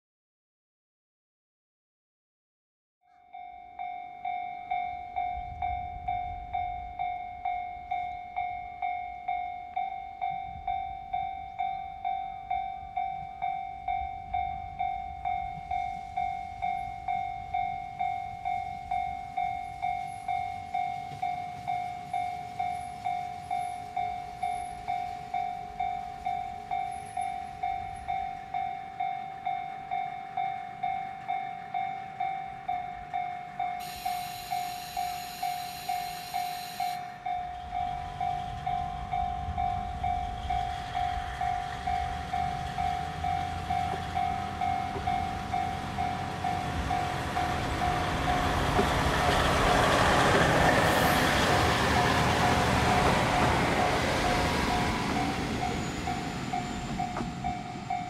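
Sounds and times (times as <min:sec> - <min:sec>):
level crossing bell ringing: 0:03.2 - 0:40.0
diesel railcar rumbling: 0:04.2 - 0:58.0.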